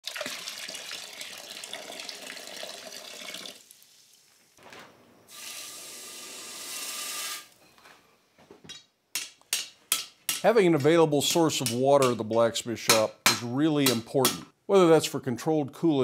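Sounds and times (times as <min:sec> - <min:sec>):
water pouring into bucket: 0:00.0 - 0:04.3, 0:05.3 - 0:07.6
steady hiss: 0:03.5 - 0:08.2.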